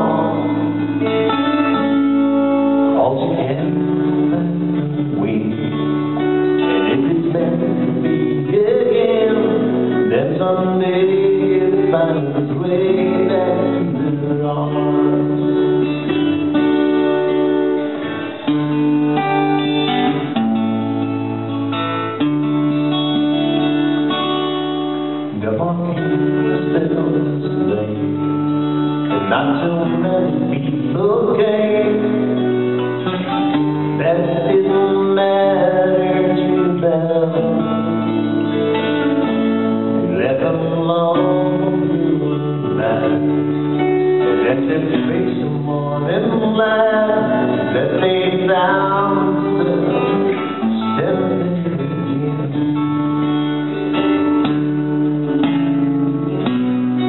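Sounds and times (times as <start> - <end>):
electric guitar: 0.0 - 57.0
strummed acoustic guitar: 0.0 - 57.0.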